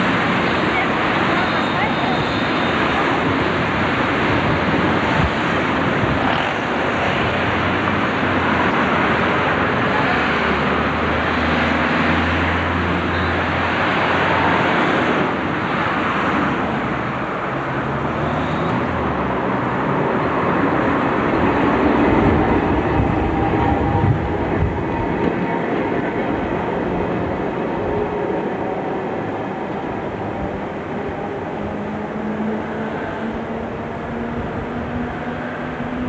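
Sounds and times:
trams and street traffic: 0:00.0 - 0:36.0.

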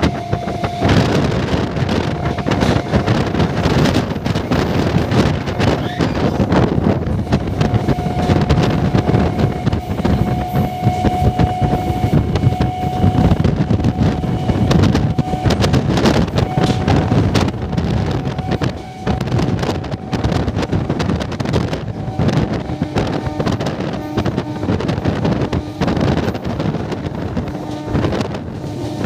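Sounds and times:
train wheels clattering on rails: 0:00.0 - 0:29.0
wind buffeting microphone: 0:00.0 - 0:29.0.

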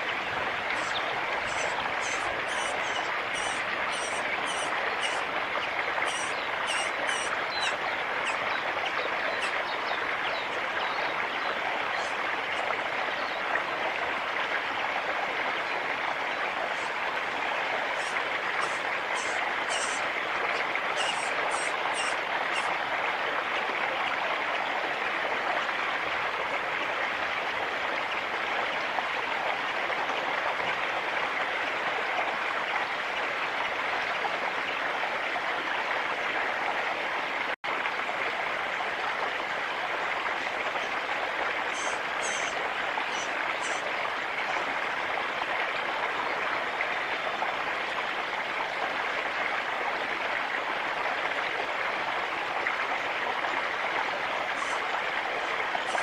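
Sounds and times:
nestlings begging calls: 0:00.8 - 0:05.2, 0:06.0 - 0:08.4, 0:18.0 - 0:20.0, 0:21.0 - 0:22.7, 0:41.7 - 0:43.8.

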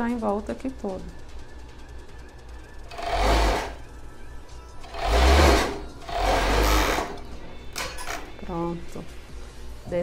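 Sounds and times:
overlock sewing machine running: 0:02.9 - 0:03.9, 0:04.8 - 0:07.3.

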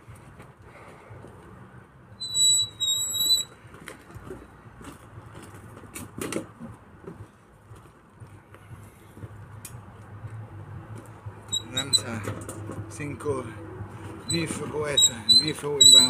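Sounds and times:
wheelbarrow wheel squealing: 0:02.1 - 0:04.4, 0:11.4 - 0:16.0.

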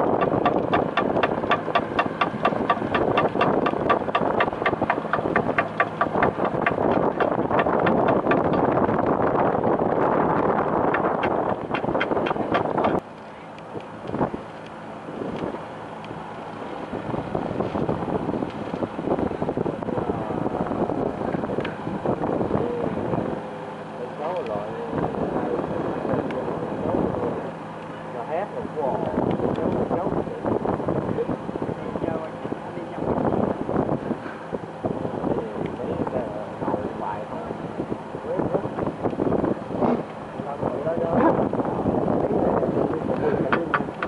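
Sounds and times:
boat diesel engine knocking: 0:00.0 - 0:14.2, 0:43.2 - 0:44.0
boat diesel engine running: 0:00.0 - 0:44.0
wind buffeting microphone: 0:00.0 - 0:44.0.

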